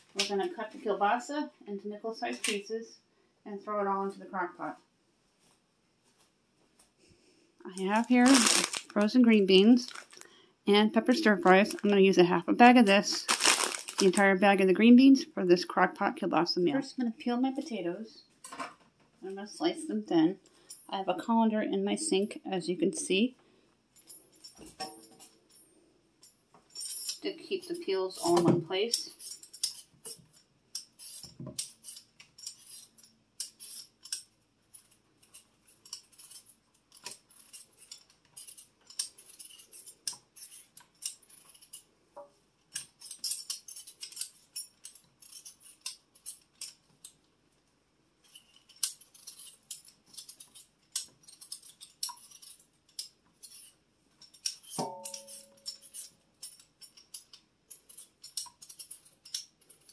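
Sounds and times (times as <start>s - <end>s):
peeler scraping potato skin: 29.0s - 41.9s, 42.7s - 47.2s, 48.2s - 54.8s.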